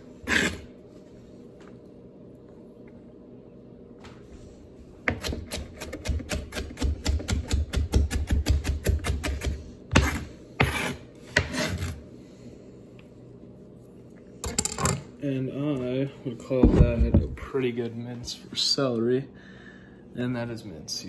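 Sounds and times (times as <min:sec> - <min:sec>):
knife scraping across board: 0:00.2 - 0:00.7, 0:09.9 - 0:12.0
knife chopping on cutting board: 0:05.1 - 0:11.8.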